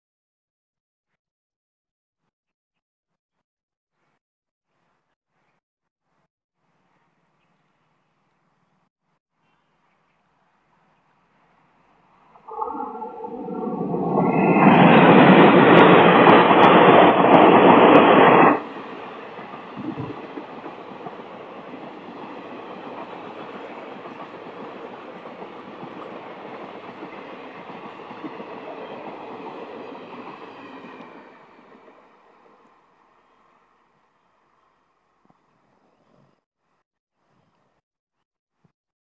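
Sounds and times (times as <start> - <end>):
diesel locomotive passing loudly: 11.3 - 34.2
train coaches rumbling and clattering: 12.3 - 32.7
locomotive horn: 12.4 - 16.0.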